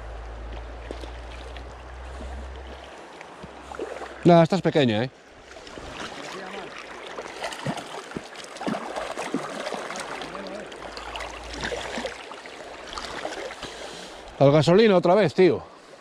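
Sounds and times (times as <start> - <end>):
water splashing: 0.0 - 14.4
river water rushing over stones: 5.6 - 14.4.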